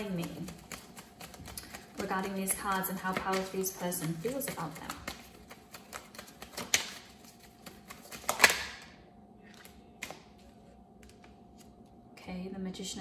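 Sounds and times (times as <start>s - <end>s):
cards shuffling: 0.0s - 8.8s
cards riffling slaps: 0.2s - 2.1s, 3.0s - 8.9s, 9.5s - 10.3s.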